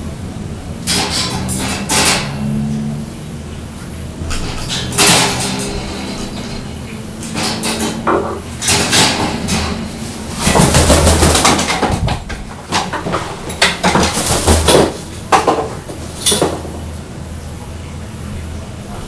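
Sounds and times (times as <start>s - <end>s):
clattering knocks and rattles: 0.8s - 2.5s, 4.2s - 16.9s.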